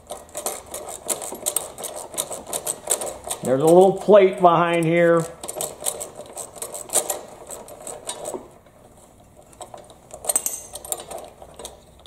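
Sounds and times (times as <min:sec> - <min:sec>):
hand ratchet clicking: 0:00.0 - 0:08.5, 0:09.5 - 0:12.0
metal clinks of tool and screws: 0:09.6 - 0:11.9.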